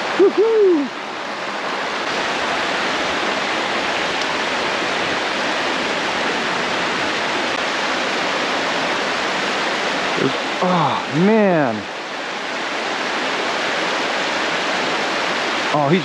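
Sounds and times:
creek water rushing: 0:00.0 - 0:16.0.

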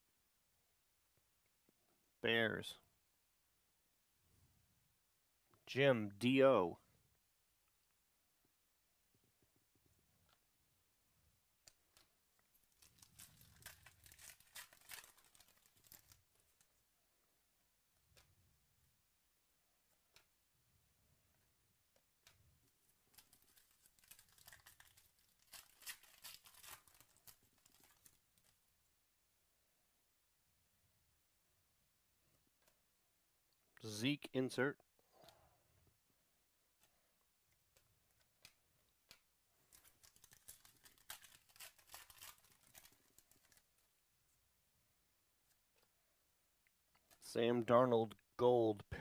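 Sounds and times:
foil wrapper tearing and crinkling: 0:12.7 - 0:16.5, 0:23.1 - 0:28.6, 0:39.7 - 0:43.8.

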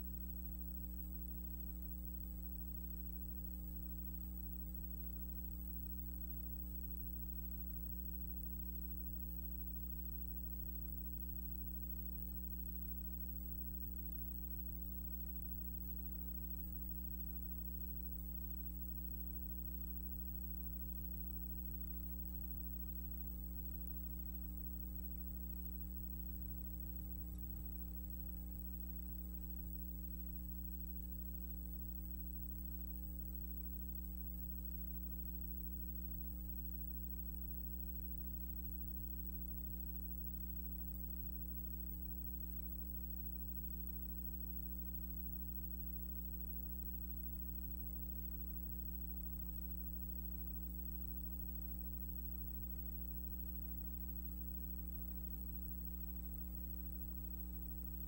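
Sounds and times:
faint high whine: 0:00.0 - 0:58.0
low electrical hum: 0:00.0 - 0:58.0.

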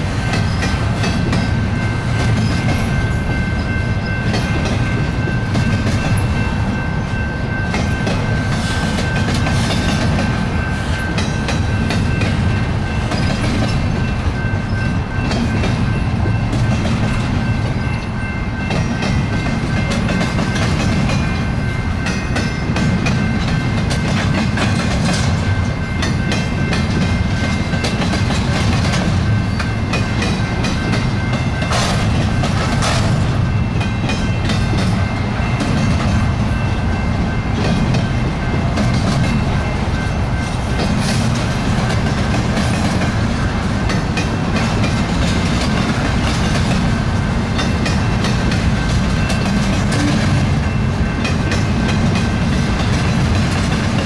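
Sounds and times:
steel wheels rumbling on rail: 0:00.0 - 0:54.0
wheels clicking over rail joints: 0:07.7 - 0:36.3.

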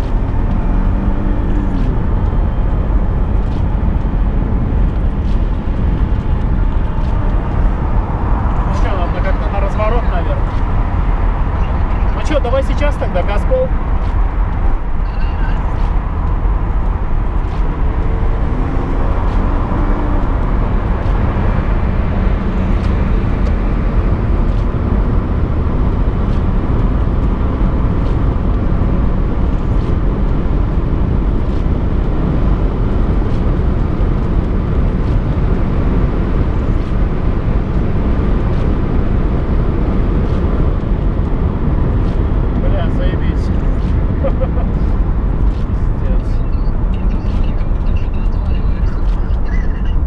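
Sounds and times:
car engine and road noise: 0:00.0 - 0:50.0.

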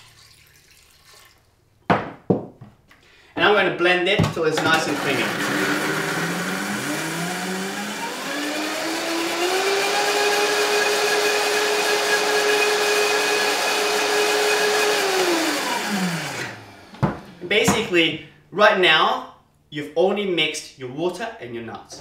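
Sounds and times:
blender running: 0:04.6 - 0:17.4.

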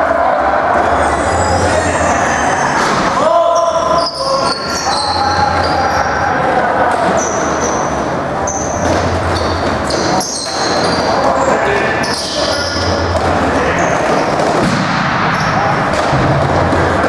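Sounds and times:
players calling out: 0:00.0 - 0:17.0
shoe squeaks: 0:01.0 - 0:02.8, 0:03.4 - 0:14.5.

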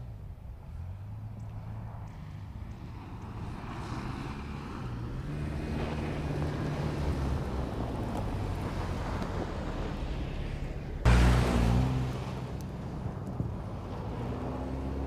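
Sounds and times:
suv engine under load: 0:03.8 - 0:15.0.

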